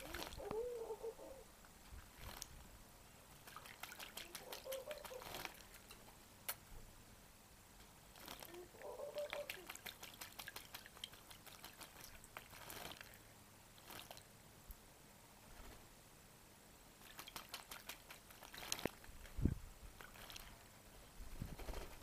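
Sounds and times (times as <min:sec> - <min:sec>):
parrot splashing in water: 0:02.1 - 0:02.5, 0:03.3 - 0:06.0, 0:08.1 - 0:13.2, 0:13.8 - 0:14.3, 0:17.0 - 0:19.1, 0:20.0 - 0:20.7.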